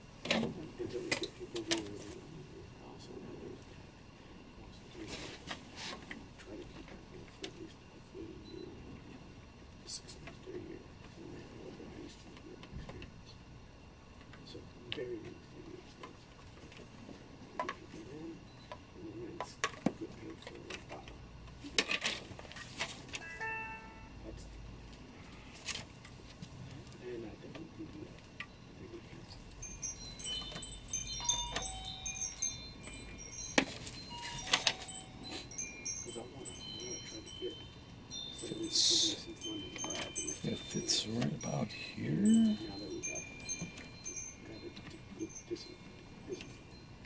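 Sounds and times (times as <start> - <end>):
short high ringing tones: 23.2 - 24.5, 29.6 - 47.0.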